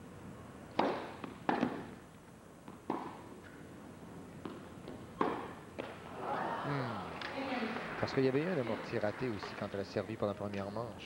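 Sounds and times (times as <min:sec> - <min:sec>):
rackets striking tennis ball: 0:00.7 - 0:02.0, 0:02.6 - 0:03.6, 0:04.4 - 0:06.1.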